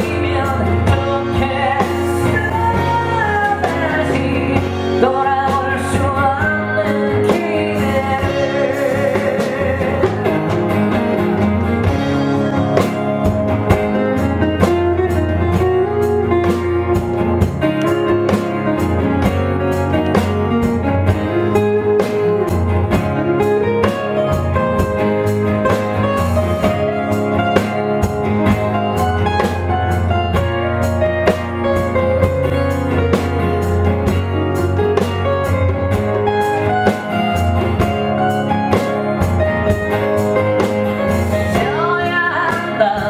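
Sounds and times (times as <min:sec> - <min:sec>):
bass: 0:00.0 - 0:43.0
guitar melody: 0:00.0 - 0:43.0.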